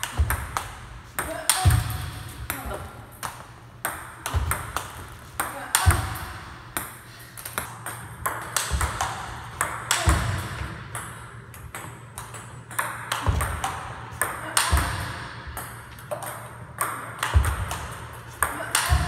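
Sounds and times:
ping-pong ball clicking: 0:06.8 - 0:10.3.

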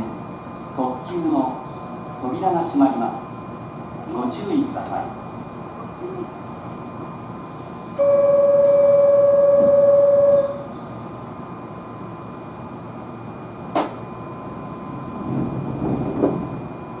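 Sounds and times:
electronic departure tone: 0:08.0 - 0:10.9.

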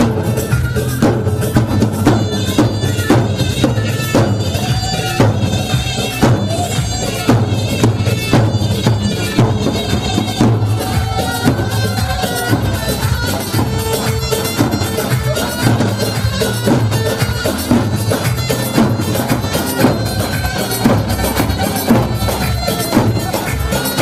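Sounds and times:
reedy wind instrument melody: 0:00.0 - 0:24.0
steady drum beat: 0:00.0 - 0:24.0.

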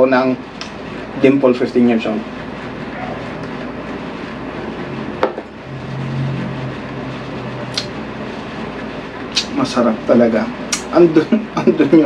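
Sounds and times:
steady room hum: 0:00.0 - 0:12.0.

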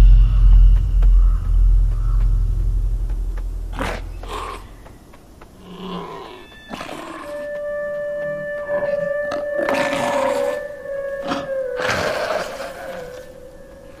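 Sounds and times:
deep rumble: 0:00.0 - 0:05.6.

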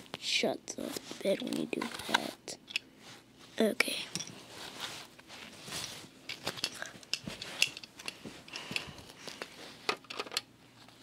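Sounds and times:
plastic pieces clicking and tapping: 0:09.9 - 0:10.5.

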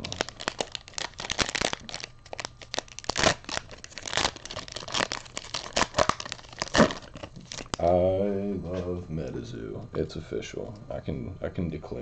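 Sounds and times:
foil wrapper crinkling and tearing: 0:00.0 - 0:07.8.

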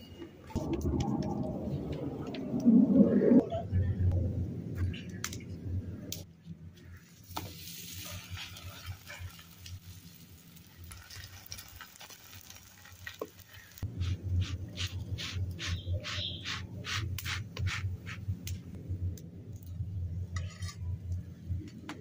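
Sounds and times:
flatbread sizzling on griddle: 0:07.2 - 0:15.8.

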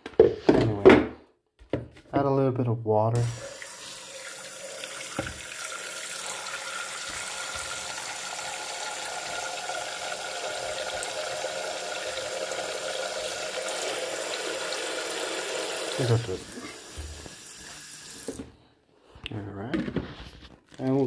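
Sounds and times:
water stream into plastic tank: 0:03.2 - 0:18.5.

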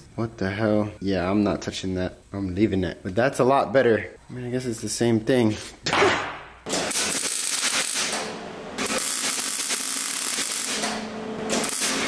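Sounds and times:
welder crackling: 0:06.7 - 0:12.0.

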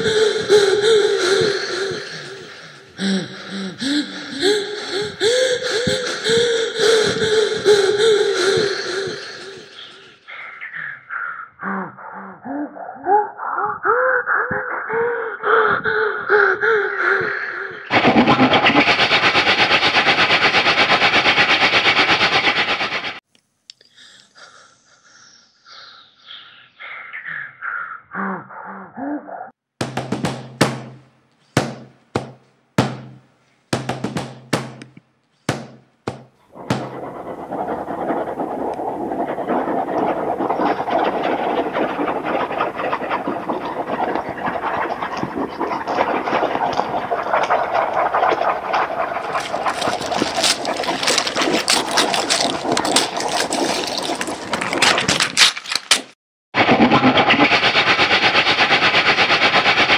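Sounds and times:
fast even rattling rhythm: 0:29.8 - 0:31.0, 0:31.6 - 0:38.5
abrupt percussive hits: 0:29.8 - 0:37.2.

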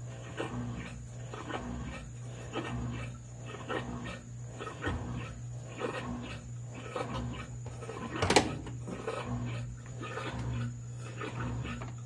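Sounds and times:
washing machine agitating: 0:00.0 - 0:12.0.

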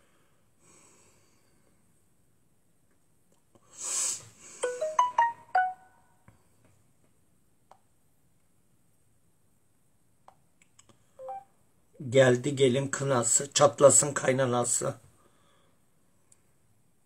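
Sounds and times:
brief hiss: 0:03.7 - 0:04.8.

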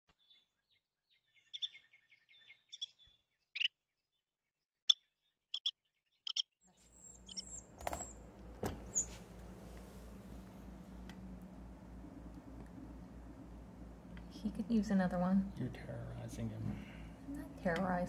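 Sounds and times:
wren calling and chattering: 0:00.2 - 0:03.8, 0:04.9 - 0:08.3, 0:08.9 - 0:09.2
background hiss: 0:07.2 - 0:17.8.

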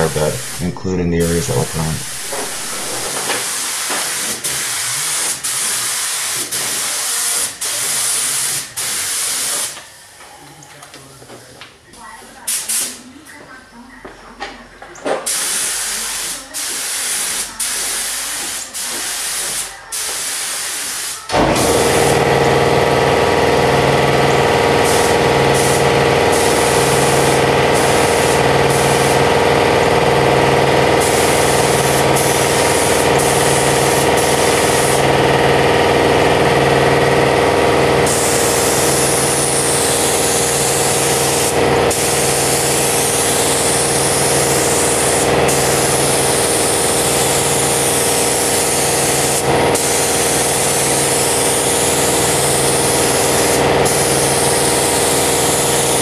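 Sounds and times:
motor humming: 0:00.0 - 0:03.2, 0:21.3 - 0:56.0
paint spray gun hissing: 0:00.0 - 0:09.8, 0:12.5 - 0:13.0, 0:15.2 - 0:56.0.

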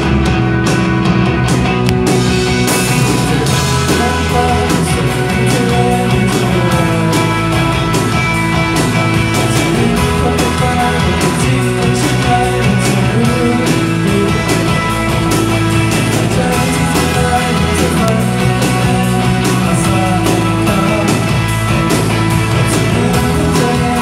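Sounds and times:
bass guitar: 0:00.0 - 0:24.0
drums: 0:00.0 - 0:24.0
electric guitar: 0:00.0 - 0:24.0
keyboards: 0:00.0 - 0:24.0.

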